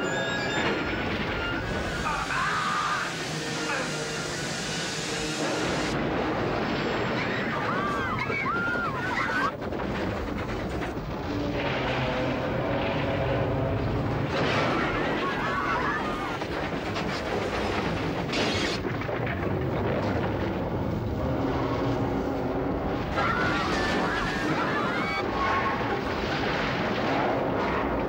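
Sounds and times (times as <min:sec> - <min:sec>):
steam train crashing: 0:00.2 - 0:20.5
rumbling crashing din: 0:05.3 - 0:28.0
shrill cries: 0:07.3 - 0:09.5, 0:23.2 - 0:25.6.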